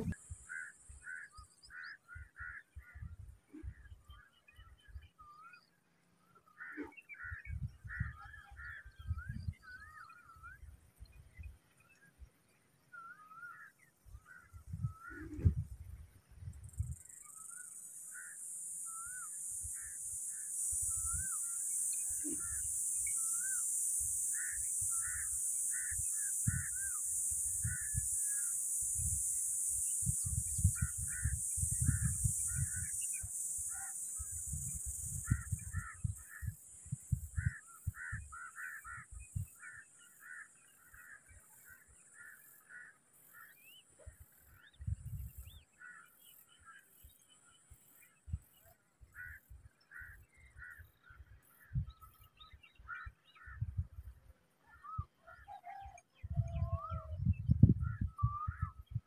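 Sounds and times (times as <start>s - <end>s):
short bird calls: 17.2s - 43.9s.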